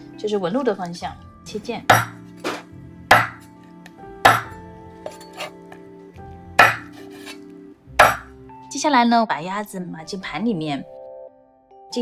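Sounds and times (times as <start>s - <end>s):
cleaver chopping on wooden board: 1.9s - 3.5s, 4.2s - 4.6s, 6.6s - 7.4s, 8.0s - 8.3s.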